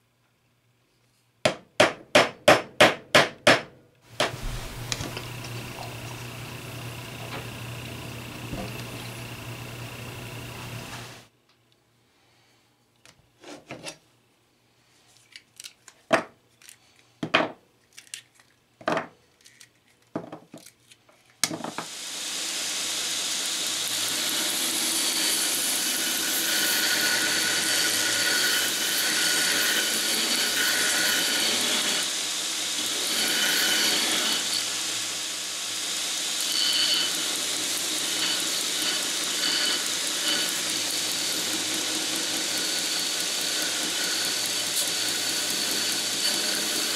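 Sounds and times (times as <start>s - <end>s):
grinding whine: 4.2s - 11.3s, 21.8s - 46.9s
belt grinder running: 4.3s - 11.3s, 21.6s - 46.9s.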